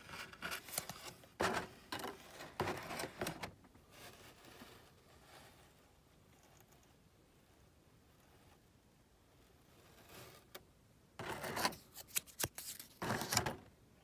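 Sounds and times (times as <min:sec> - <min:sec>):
paper rustling: 0:00.0 - 0:03.4, 0:11.2 - 0:13.6.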